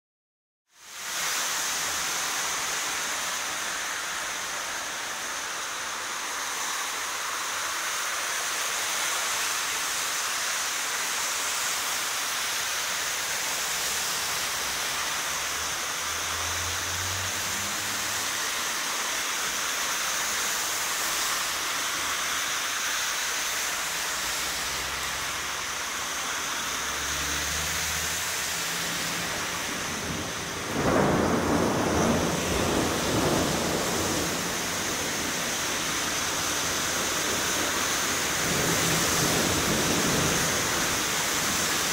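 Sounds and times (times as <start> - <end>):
heavy rain pouring: 0.7 - 41.9
water running across street: 0.7 - 41.9.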